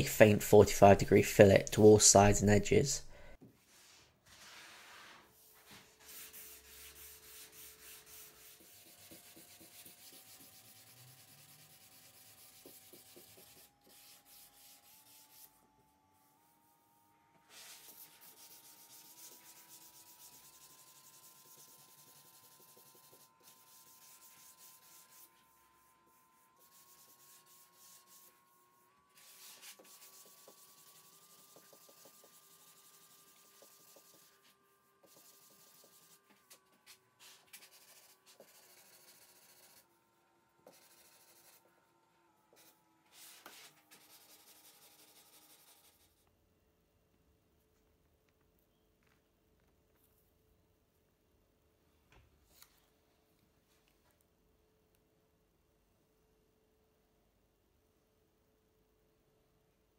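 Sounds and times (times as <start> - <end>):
sanding strokes on wood: 6.0 - 15.5, 17.5 - 25.4, 26.6 - 28.4, 29.2 - 36.2.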